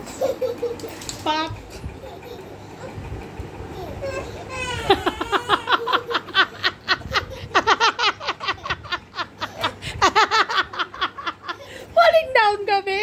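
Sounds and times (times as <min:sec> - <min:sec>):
high-pitched laughter: 0:04.8 - 0:11.8.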